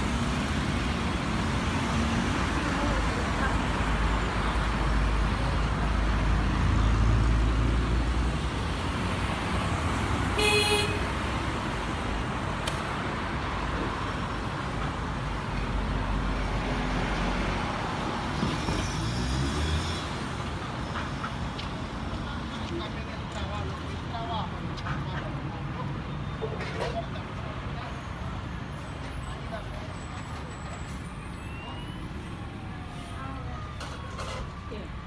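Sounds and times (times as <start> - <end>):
road traffic roar: 0.0 - 35.0
car horn toot: 10.4 - 11.1.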